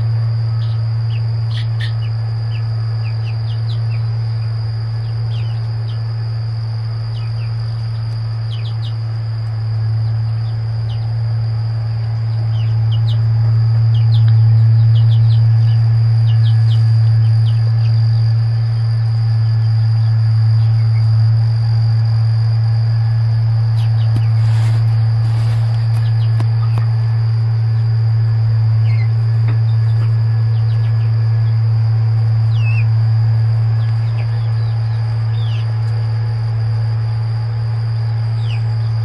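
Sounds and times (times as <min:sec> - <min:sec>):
chicks peeping: 0:00.0 - 0:04.4, 0:05.0 - 0:06.1, 0:07.1 - 0:09.0, 0:12.2 - 0:18.8, 0:23.7 - 0:27.0, 0:28.8 - 0:31.6, 0:32.2 - 0:33.0, 0:33.6 - 0:36.1, 0:38.3 - 0:39.0
high-pitched insect drone: 0:00.0 - 0:39.0
loud low hum: 0:00.0 - 0:39.0.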